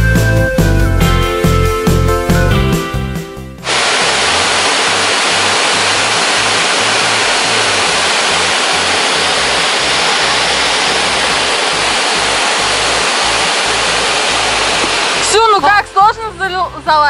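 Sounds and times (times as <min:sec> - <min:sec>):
background music: 0:00.0 - 0:03.7, 0:04.3 - 0:17.0
waterfall rushing: 0:03.6 - 0:15.6.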